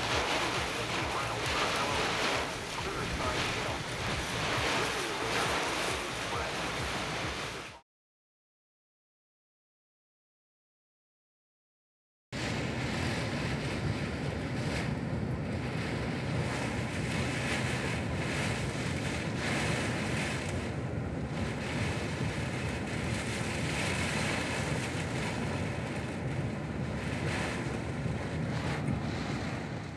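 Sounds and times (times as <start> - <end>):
wind buffeting microphone: 0.0 - 7.7, 12.4 - 29.9
rain hissing: 0.0 - 7.8, 21.4 - 29.9
small waves splashing: 0.0 - 7.8.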